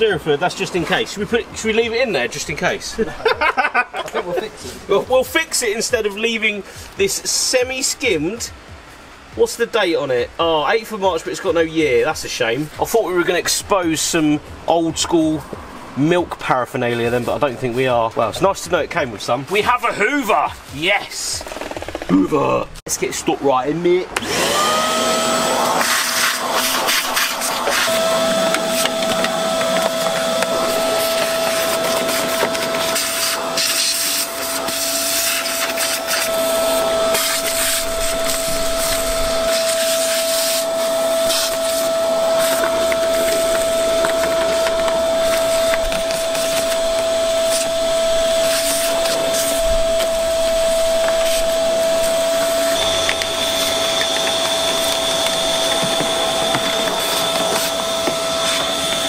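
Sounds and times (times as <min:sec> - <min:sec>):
vacuum cleaner motor whine: 0:24.2 - 0:59.0
high whistle: 0:25.1 - 0:59.0
debris rattling up hose: 0:25.7 - 0:59.0.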